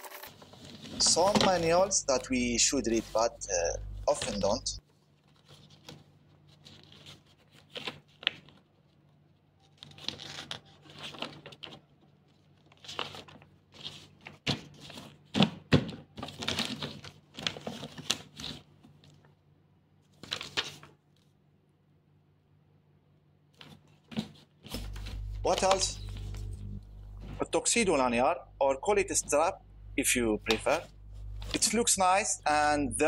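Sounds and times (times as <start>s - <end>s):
paper rustling: 0.0s - 3.3s, 4.1s - 19.4s, 20.0s - 21.3s, 23.5s - 27.4s.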